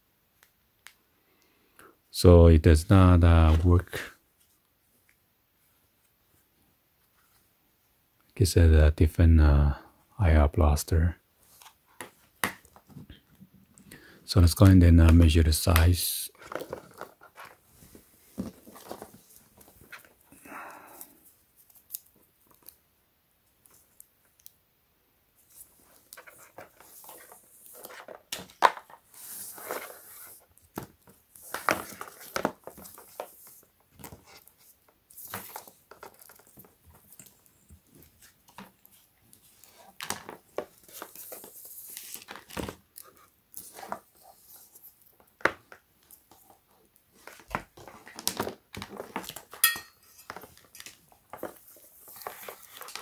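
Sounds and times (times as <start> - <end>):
plastic rustling and crinkling: 15.5 - 22.8, 25.4 - 53.0.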